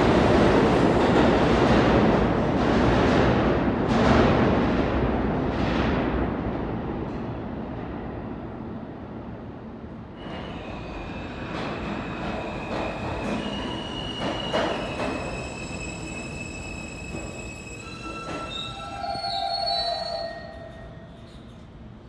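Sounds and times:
subway train wheels squealing: 10.1 - 22.0
train wheels clacking: 11.5 - 16.4.

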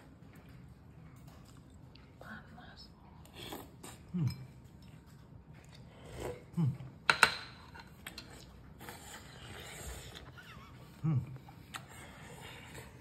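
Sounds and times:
person chewing: 3.2 - 7.0.

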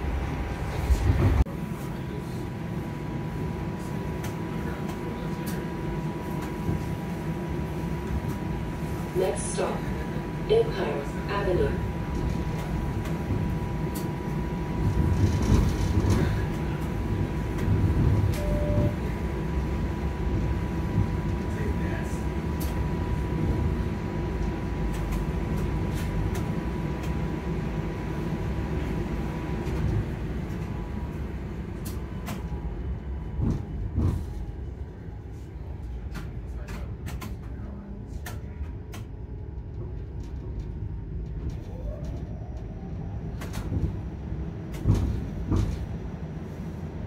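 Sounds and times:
streetcar rumble: 0.0 - 47.0
clicks and knocks from streetcar: 0.7 - 2.1, 12.0 - 23.7, 24.3 - 27.2, 28.8 - 30.8, 31.8 - 34.8, 35.8 - 46.7.

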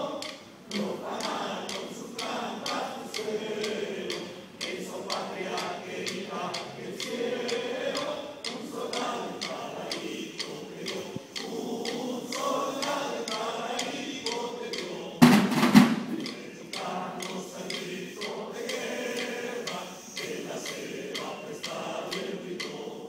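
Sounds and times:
many voices singing: 0.0 - 23.0
snare drums beating march rhythm: 10.9 - 18.0
loud knocking burst: 15.2 - 16.4.

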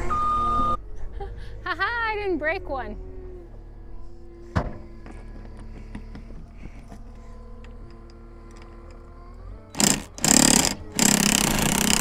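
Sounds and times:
skid steer engine running: 9.4 - 12.0
impact wrench hammering: 9.8 - 12.0.

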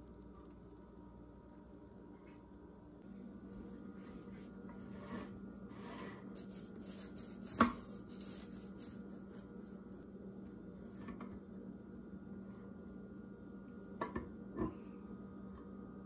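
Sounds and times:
knife sawing through bread: 5.0 - 9.5.

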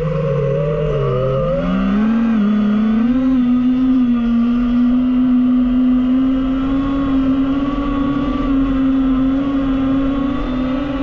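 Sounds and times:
drone propellers whining: 0.0 - 11.0.

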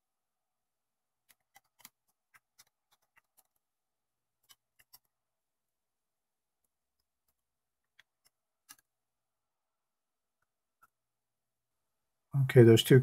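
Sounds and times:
small plastic clicks and taps: 6.6 - 8.9.

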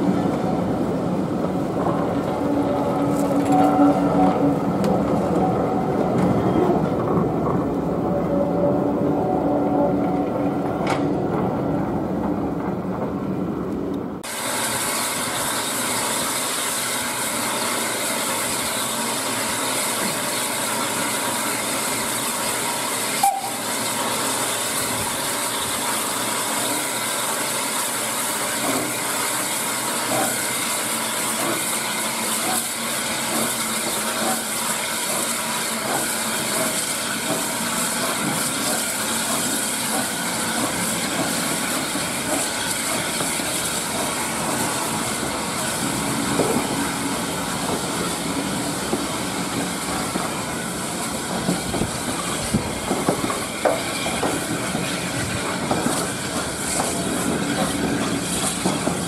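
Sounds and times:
steam hissing: 14.2 - 59.0
train wheels clicking over rail joints: 15.0 - 59.0.

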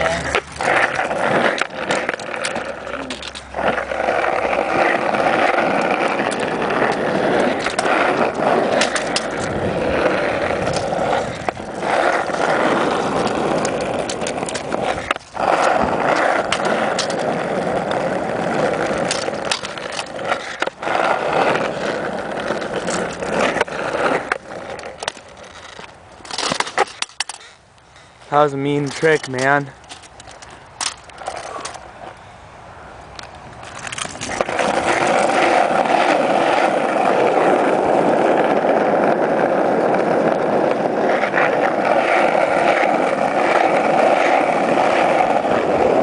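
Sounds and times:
scooter clacking on ground: 0.0 - 32.2, 33.2 - 46.0
scooter wheels rolling on asphalt: 0.0 - 46.0.

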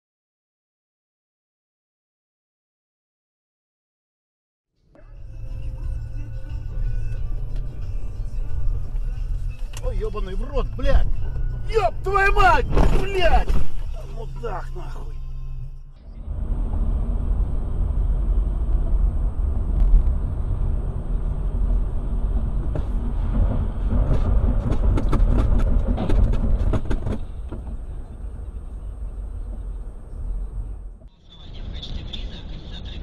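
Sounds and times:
car road and engine rumble: 4.8 - 33.0
sharp clicks and knocks: 22.6 - 27.8.

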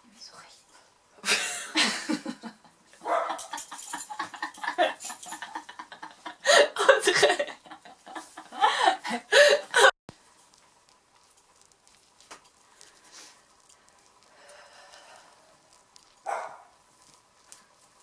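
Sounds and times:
women laughing: 1.2 - 9.9.

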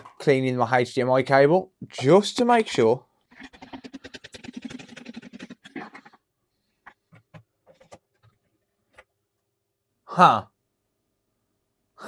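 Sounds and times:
rapid scrubbing strokes: 3.3 - 6.2.

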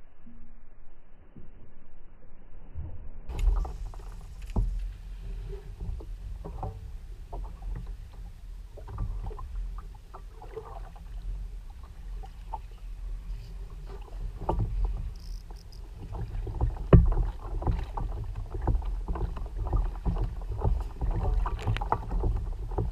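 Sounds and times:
water slapping kayak hull: 3.3 - 22.9
fishing rod and reel knocks: 14.5 - 15.9.

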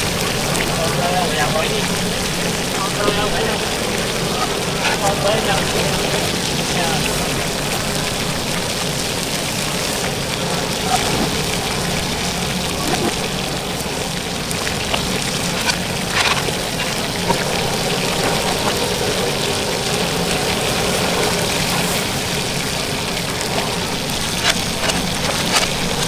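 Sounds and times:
gas burner hum: 0.0 - 26.0
metal tongs clinking on wok: 15.4 - 17.0.

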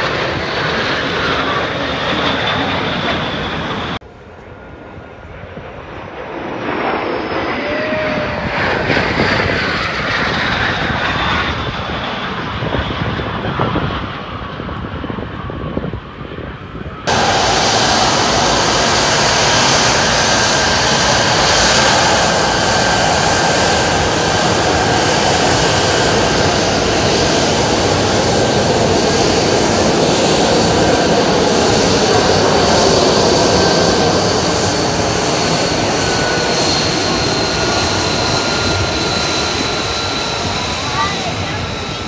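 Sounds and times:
jet engine roaring with whine: 0.0 - 42.0.

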